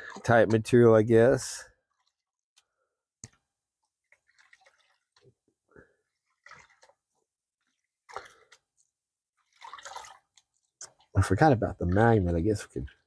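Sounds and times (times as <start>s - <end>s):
water sloshing and dripping: 0.0s - 13.0s
water splash: 4.1s - 5.4s, 6.2s - 7.0s, 9.4s - 13.0s.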